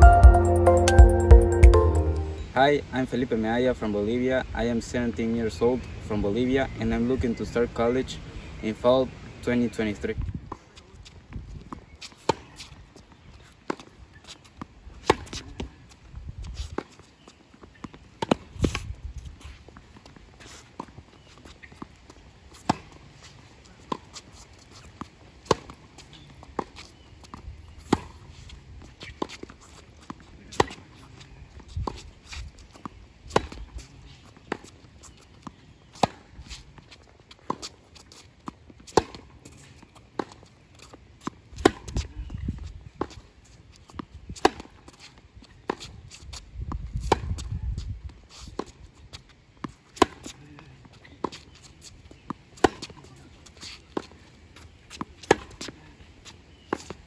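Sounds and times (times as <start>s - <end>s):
tennis ball bouncing on court: 17.6s - 18.8s, 25.4s - 28.2s, 29.0s - 33.8s, 34.4s - 36.3s, 40.2s - 42.1s, 43.9s - 45.0s, 46.8s - 47.5s, 48.6s - 50.4s, 51.2s - 54.2s, 54.9s - 57.0s
tennis ball struck by rackets: 33.3s - 33.6s, 36.0s - 36.2s, 41.6s - 42.1s, 44.4s - 44.7s, 47.0s - 47.5s, 49.9s - 50.4s, 52.6s - 53.0s, 55.2s - 55.7s.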